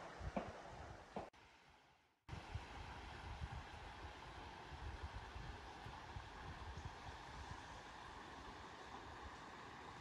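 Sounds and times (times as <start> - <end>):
steady outdoor hiss: 0.0 - 10.0
wind buffeting microphone: 2.3 - 7.8.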